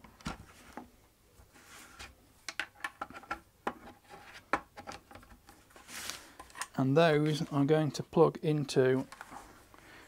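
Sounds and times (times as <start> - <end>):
soft rustle: 0.4 - 2.2, 5.5 - 6.6, 9.0 - 10.0.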